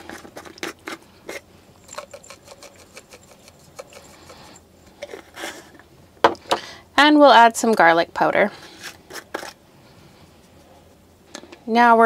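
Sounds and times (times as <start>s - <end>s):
salt shaker rattling: 0.0s - 4.6s.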